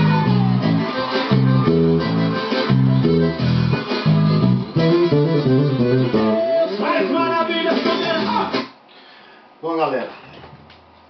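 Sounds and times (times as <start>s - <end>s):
electric bass groove: 0.0s - 6.6s.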